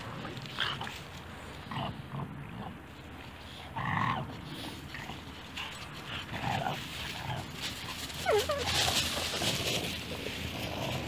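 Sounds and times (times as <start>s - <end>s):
dogs vocalizing: 1.7s - 9.4s.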